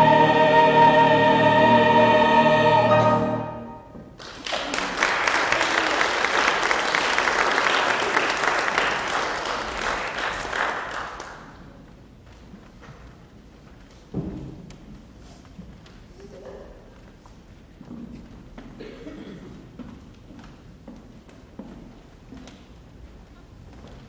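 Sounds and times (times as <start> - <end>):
choir singing held chord: 0.0 - 3.9
congregation applauding: 4.2 - 11.6.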